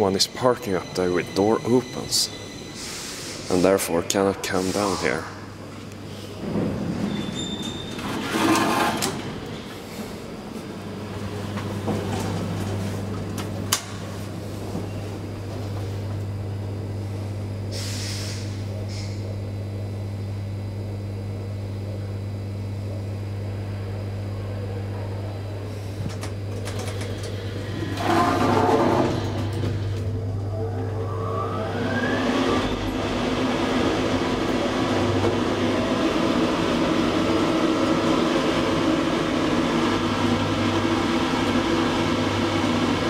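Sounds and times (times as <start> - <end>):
elevator doors sliding: 0.0 - 15.9, 25.8 - 43.0
low electrical hum: 18.4 - 31.8.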